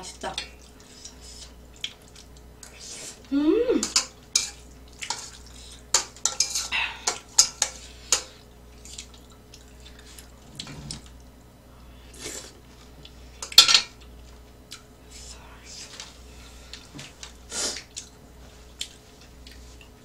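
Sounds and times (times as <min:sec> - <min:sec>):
utensils clinking on metal pan: 0:05.9 - 0:08.3.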